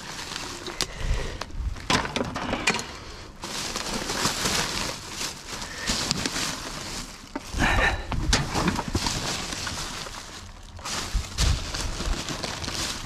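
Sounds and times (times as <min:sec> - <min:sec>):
rubbish rustling: 0:00.0 - 0:13.0
items knocking and clinking: 0:01.8 - 0:02.9, 0:08.1 - 0:09.3.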